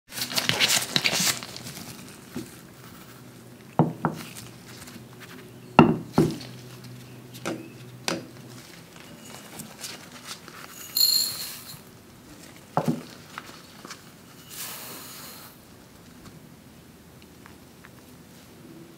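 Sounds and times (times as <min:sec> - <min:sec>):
rustle: 0:00.1 - 0:16.6
glass bowls knocking on wood: 0:05.8 - 0:06.4
bright glass ring: 0:09.0 - 0:09.7, 0:10.7 - 0:11.9.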